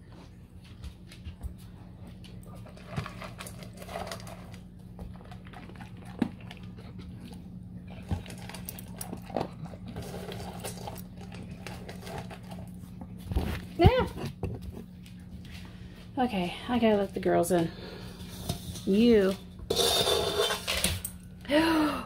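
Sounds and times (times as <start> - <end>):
dog crunching dry kibble: 0.8 - 15.4
kibble clinking metal bowl: 7.9 - 12.5.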